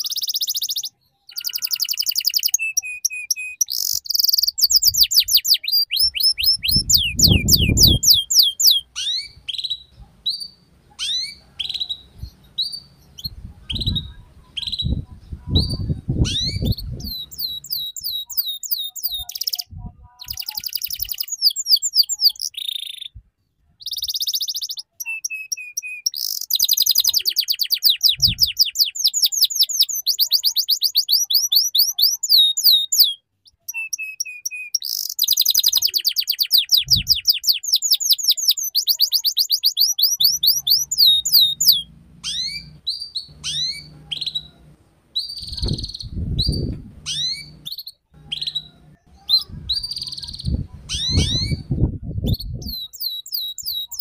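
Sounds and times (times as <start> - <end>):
canary singing trills: 0.0 - 23.2, 23.8 - 54.0
low rumble: 41.4 - 47.6.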